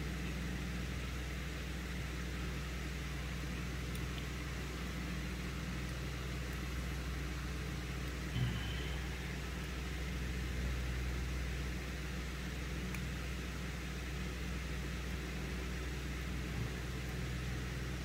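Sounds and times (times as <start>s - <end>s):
low machine hum: 0.0s - 18.0s.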